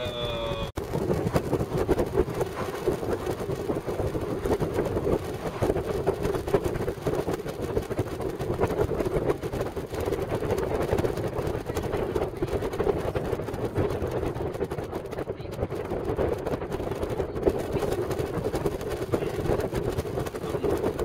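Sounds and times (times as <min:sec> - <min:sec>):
car engine and tyre rumble: 0:00.0 - 0:21.0.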